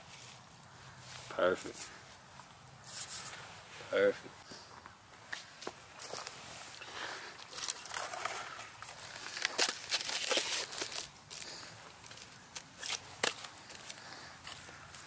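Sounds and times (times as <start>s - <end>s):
hands scraping dry soil: 0.0s - 2.0s, 2.8s - 4.7s.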